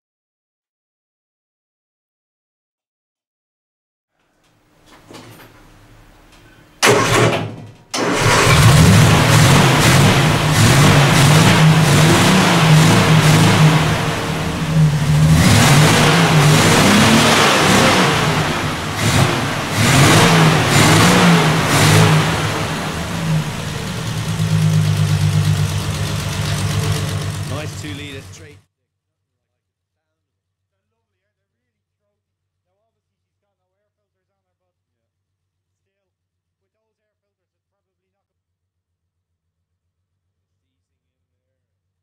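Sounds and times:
engine cranking and revving: 6.8 - 28.6.

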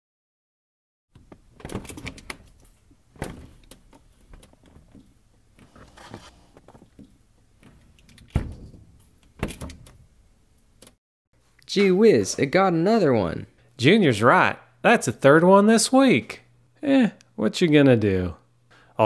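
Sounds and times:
refrigerator door opening with rattle: 1.3 - 5.1, 7.6 - 10.1
refrigerator door thunking shut: 8.3 - 9.9.

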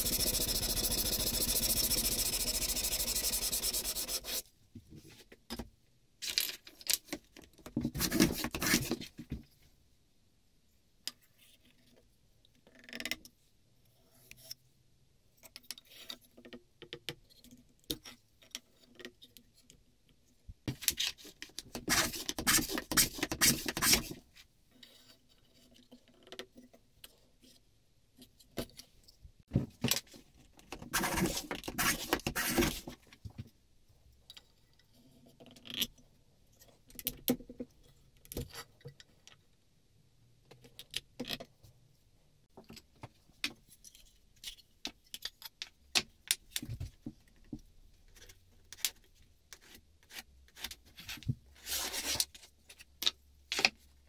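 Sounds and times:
hand tool scraping wood: 0.0 - 4.4
pen scratching on wood: 0.0 - 4.4, 30.9 - 32.9.

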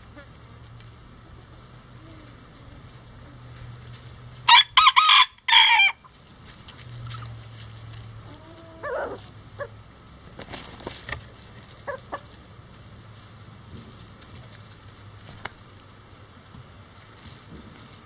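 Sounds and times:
rooster crowing: 4.5 - 6.1
chicken clucking: 8.2 - 11.0, 11.6 - 12.4.

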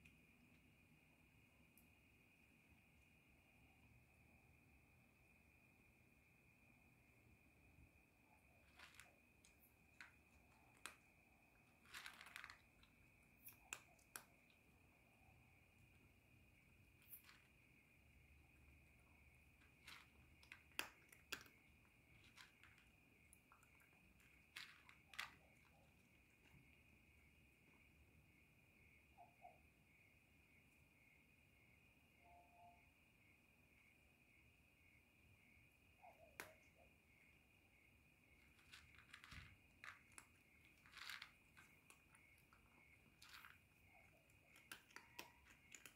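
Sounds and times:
cricket chirr: 0.0 - 45.9
cat crunching dry kibble: 8.4 - 26.6, 38.4 - 45.9.

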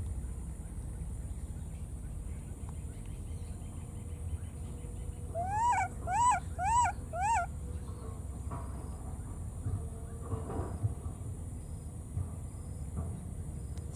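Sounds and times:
baby monkey crying: 5.4 - 7.5.

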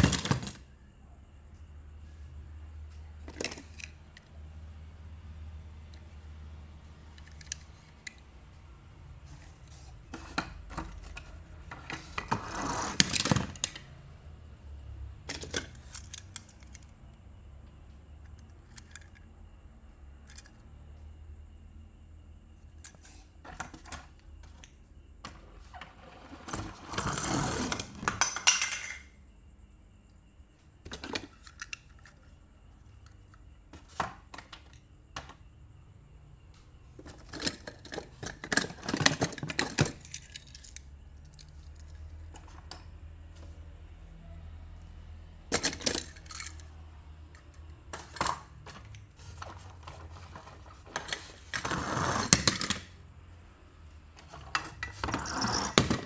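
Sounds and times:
toy cars clinking and clattering: 0.0 - 0.7, 3.2 - 4.3, 7.0 - 8.2, 9.4 - 13.9, 15.2 - 17.0, 18.2 - 19.4, 20.2 - 20.6, 25.9 - 29.2, 30.9 - 32.4, 37.0 - 42.9, 45.5 - 53.0, 54.2 - 56.0.

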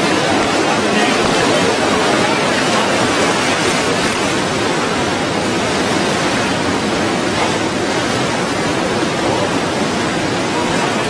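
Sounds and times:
river rushing: 0.0 - 11.0.

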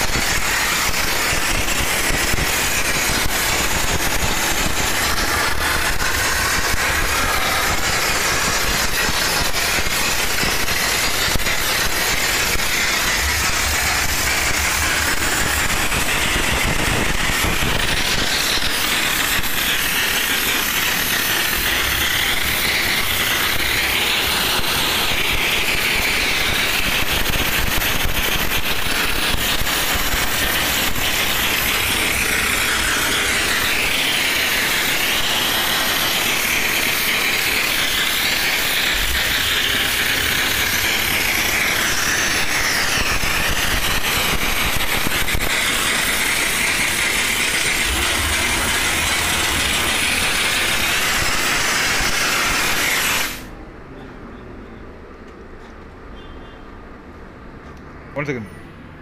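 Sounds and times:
steam wand hissing: 0.0 - 53.6
low machine rumble: 45.8 - 51.4.

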